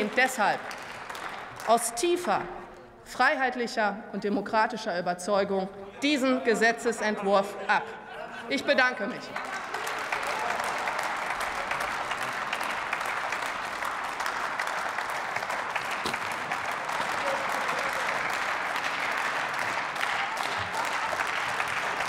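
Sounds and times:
crowd applauding: 0.0 - 2.8, 9.1 - 22.0.

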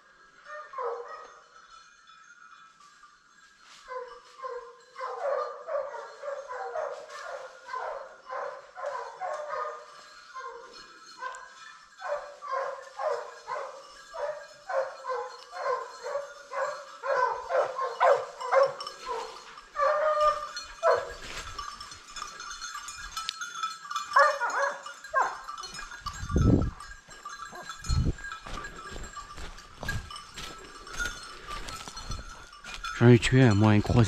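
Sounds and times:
hounds baying: 0.0 - 1.6, 3.6 - 34.0.

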